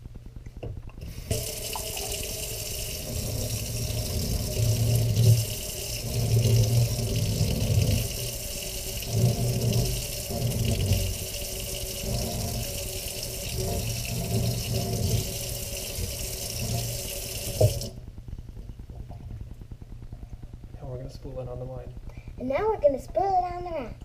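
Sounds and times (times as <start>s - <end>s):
faucet water splashing in sink: 1.0s - 18.0s.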